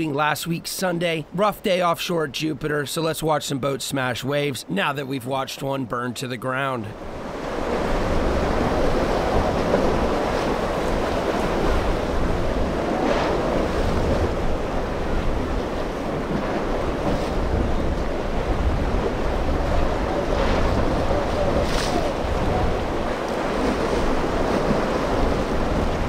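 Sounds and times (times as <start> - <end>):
ocean surf breaking: 0.0 - 26.0
wave splashes: 0.0 - 26.0
wind rushing across microphone: 7.0 - 26.0.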